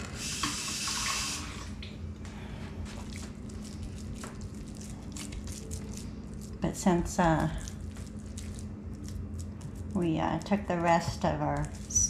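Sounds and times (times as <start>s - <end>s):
hands squishing raw meat: 2.8s - 12.0s.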